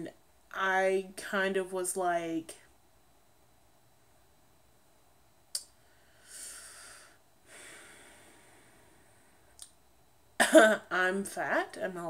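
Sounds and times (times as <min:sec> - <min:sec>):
mouth click: 0:05.5 - 0:05.8, 0:09.6 - 0:09.8
woman breathing through nose: 0:05.8 - 0:09.5.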